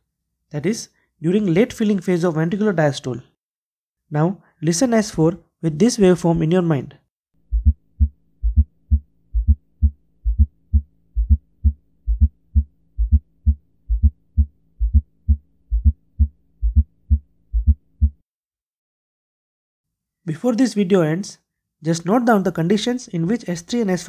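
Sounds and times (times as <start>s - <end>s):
galloping heartbeat thuds: 7.5s - 18.2s.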